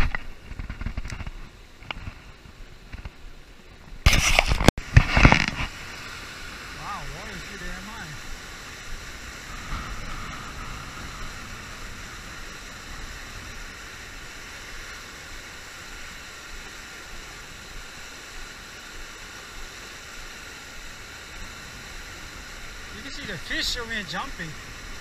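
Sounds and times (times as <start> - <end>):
river water pouring over dam: 4.1 - 25.0.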